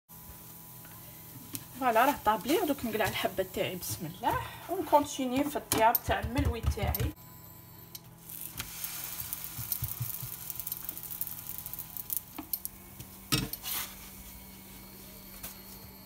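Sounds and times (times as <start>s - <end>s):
dough sizzling in a pan: 0.1s - 4.6s, 8.2s - 15.4s.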